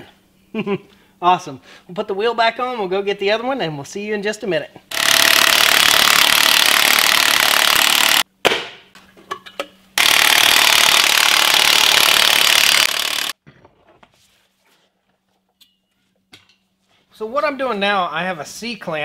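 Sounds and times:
impact wrench hammering lug nuts: 4.9 - 8.2, 10.0 - 13.4.

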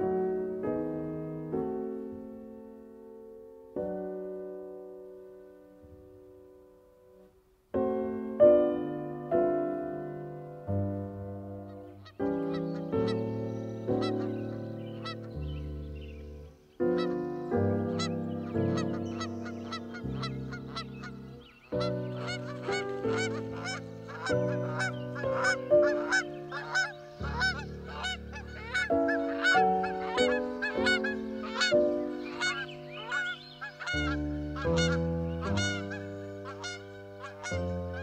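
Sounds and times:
slow sustained background music: 0.0 - 38.0
geese honking: 11.6 - 38.0.

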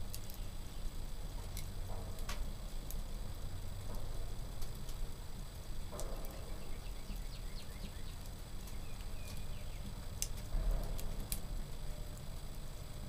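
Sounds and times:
sharp crackling pops: 0.0 - 13.0
wood fire crackling: 0.0 - 13.0
songbirds chirping: 4.9 - 10.4.

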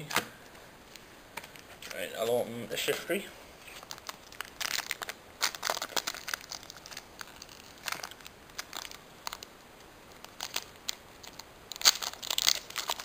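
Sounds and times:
foil wrapper crinkling: 3.6 - 13.0.

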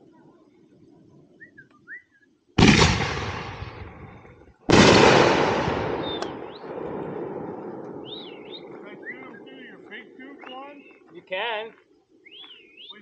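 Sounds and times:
firework explosions: 2.6 - 10.2.

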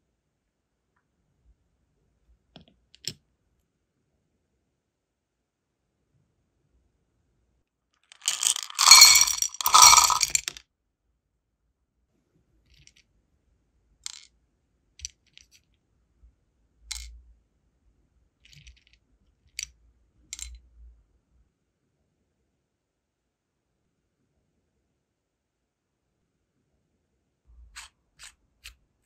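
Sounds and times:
wax beads clinking on glass dish: 8.2 - 10.6.

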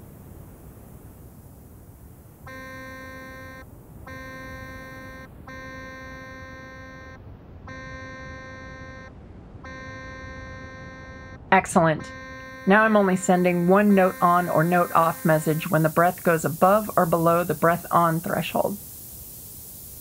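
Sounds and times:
synthesizer held note: 2.5 - 9.1, 9.7 - 18.6.

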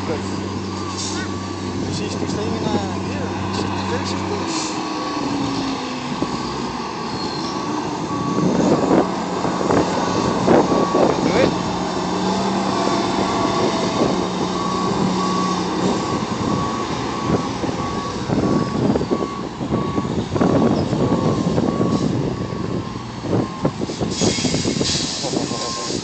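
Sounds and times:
diesel engine rumbling: 0.0 - 26.0
reversing alarm beeping: 0.1 - 11.6, 12.2 - 26.0
air hissing: 23.9 - 26.0.

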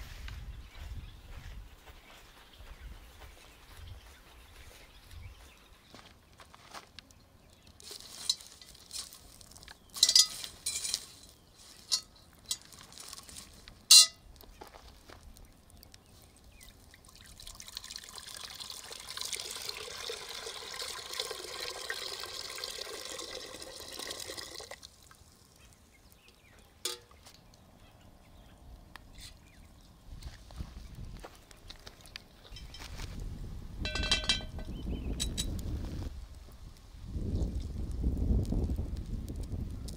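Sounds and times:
water pouring into pot: 16.8 - 25.3
metallic knocks and clanks: 33.8 - 35.5.

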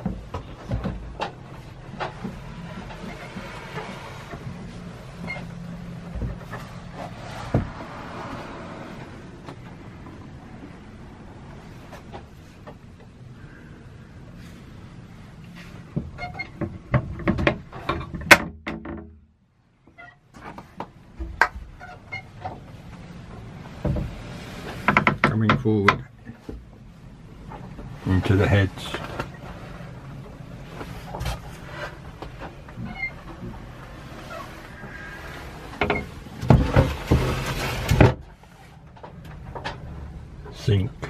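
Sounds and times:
sharp knocks and clicks: 16.0 - 19.2, 24.8 - 26.7.

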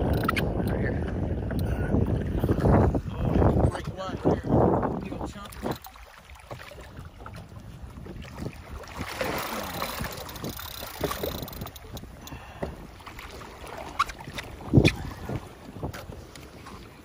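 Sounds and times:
water splashing from thrashing fish: 5.4 - 12.2, 13.0 - 15.6.

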